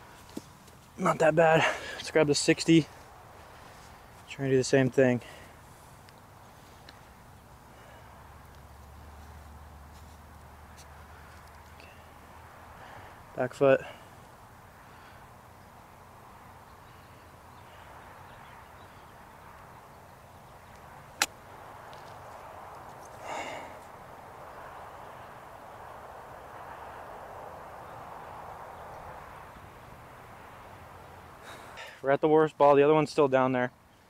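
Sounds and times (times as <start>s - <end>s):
outdoor background noise: 0.0s - 34.0s
golf club striking ball: 21.2s - 21.4s.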